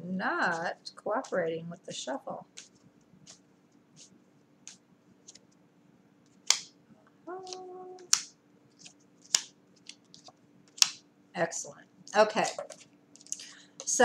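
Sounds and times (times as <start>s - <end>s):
cards being shuffled: 2.5s - 3.4s, 7.4s - 11.0s, 12.4s - 13.4s.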